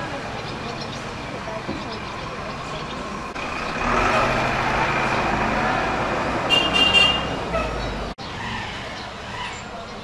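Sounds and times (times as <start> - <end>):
traffic noise: 0.0 - 10.0
high horn toot: 6.5 - 7.4.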